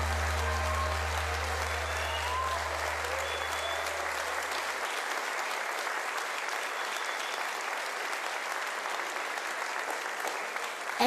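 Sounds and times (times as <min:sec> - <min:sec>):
band low held note: 0:00.0 - 0:03.1
audience applauding: 0:00.0 - 0:11.0.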